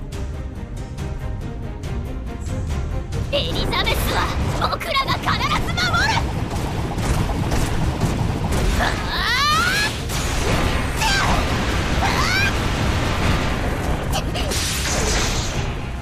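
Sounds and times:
rumbling crashes and impacts: 3.5s - 16.0s
sharp hits: 4.3s - 16.0s
woman shouting and grunting: 8.8s - 10.0s, 10.9s - 11.4s, 12.0s - 12.6s.

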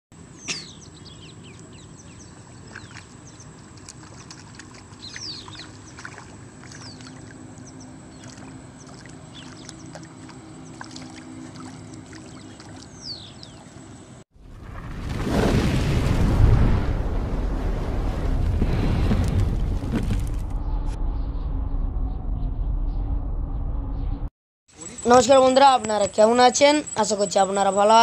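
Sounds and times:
birds chirping: 0.2s - 14.2s
low steady rumble: 16.3s - 24.3s.

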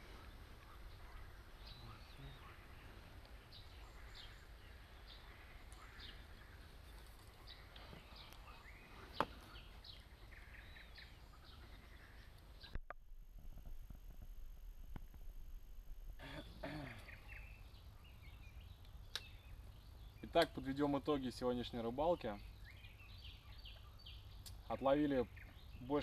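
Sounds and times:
birds chirping: 0.0s - 12.9s, 16.2s - 26.0s
low steady rumble: 12.8s - 16.3s.

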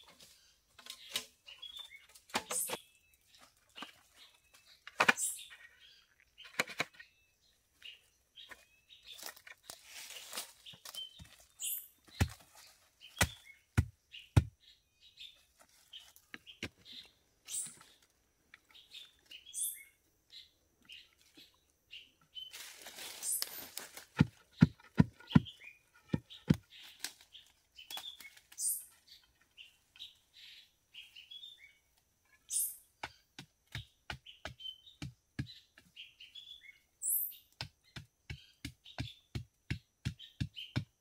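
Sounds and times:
small birds chirping: 0.0s - 41.0s
wooden pole thudding into soil: 0.8s - 2.9s, 9.2s - 14.5s.

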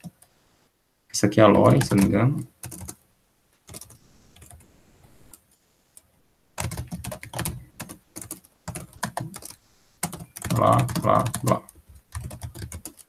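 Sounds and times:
typing on computer keyboard: 1.6s - 3.0s, 3.7s - 4.6s, 6.6s - 13.0s.

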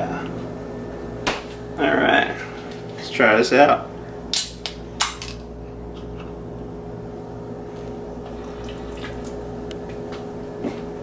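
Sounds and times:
soda fizzing: 8.2s - 9.6s.

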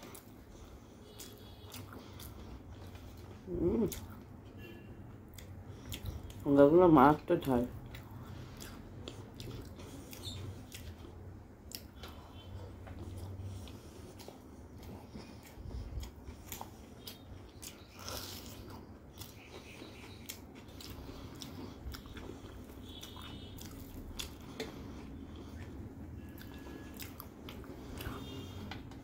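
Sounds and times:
person chewing: 0.0s - 6.5s, 7.4s - 29.0s.

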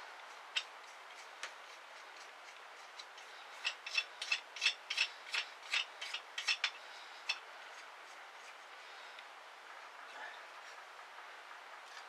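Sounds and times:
ratchet wrench clicking: 3.6s - 7.4s.

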